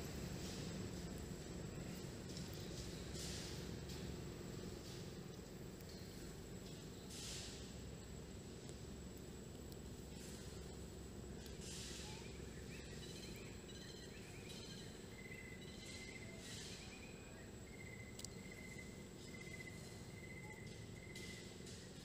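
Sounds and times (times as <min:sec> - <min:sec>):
soft bursts of hiss: 0:00.0 - 0:12.5
high insect whine: 0:00.0 - 0:22.0
bird chirps and trills: 0:11.7 - 0:21.8.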